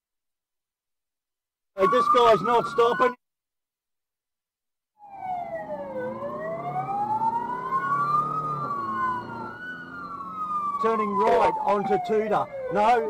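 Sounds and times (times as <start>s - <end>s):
police sirens wailing: 1.8s - 3.2s, 5.0s - 13.0s.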